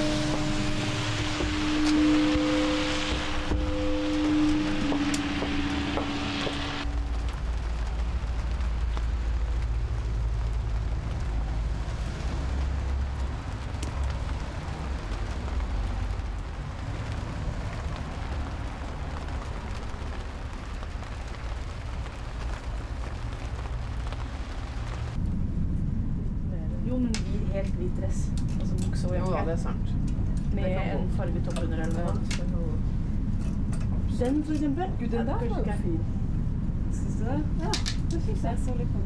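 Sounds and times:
held low tone: 0.0 - 7.1
low outdoor rumble: 0.0 - 39.0.

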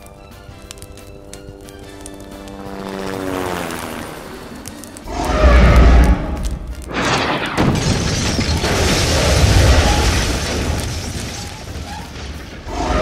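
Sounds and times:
low rumbling noise: 3.7 - 13.0.

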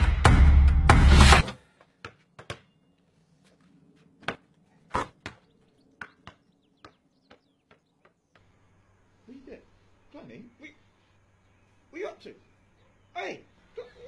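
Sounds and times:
basketball bouncing on paving: 1.8 - 2.8, 4.2 - 8.5.

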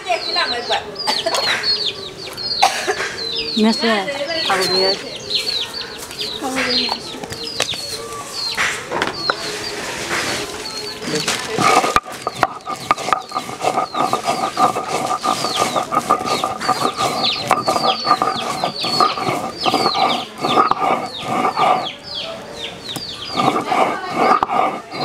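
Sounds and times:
chickens clucking: 0.0 - 25.0
stone roller knocking and scraping: 11.0 - 22.0, 23.0 - 25.0.

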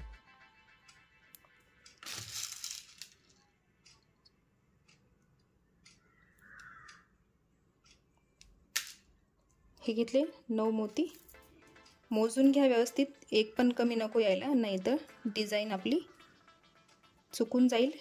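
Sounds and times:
beads clicking: 1.4 - 4.4.

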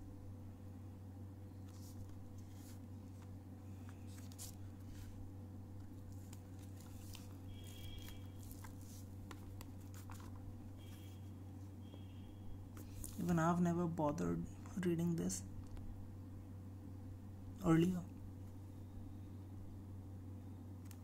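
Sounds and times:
packaging clicks and rustles: 6.0 - 11.1.

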